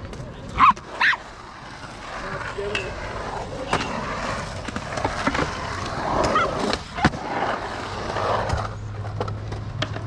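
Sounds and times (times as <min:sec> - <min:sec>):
skateboard wheels rolling on concrete: 0:00.0 - 0:10.0
skateboard clacking on concrete: 0:08.2 - 0:10.0.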